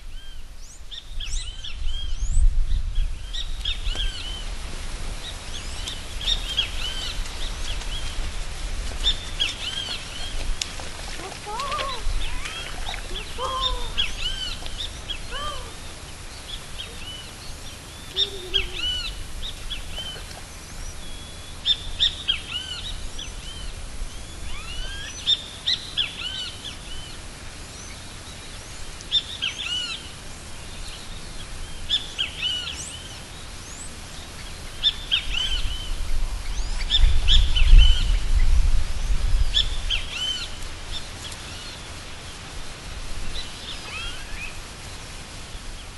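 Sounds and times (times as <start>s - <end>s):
birds chirping: 5.2s - 30.1s
lower bird calls: 8.9s - 27.2s, 43.2s - 44.6s.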